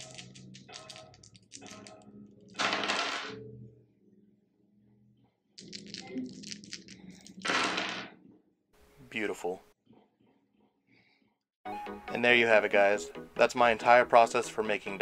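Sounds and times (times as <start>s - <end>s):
dice clattering on wooden table: 0.0s - 1.9s, 2.6s - 3.4s, 5.6s - 8.1s
dice clicking in a hand: 0.0s - 1.9s, 5.6s - 7.6s
soft background music: 11.7s - 15.0s.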